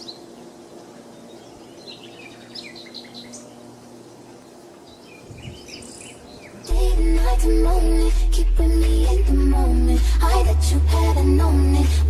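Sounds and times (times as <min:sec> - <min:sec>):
small birds chirping: 0:00.0 - 0:07.0
faint low drone: 0:00.0 - 0:12.0.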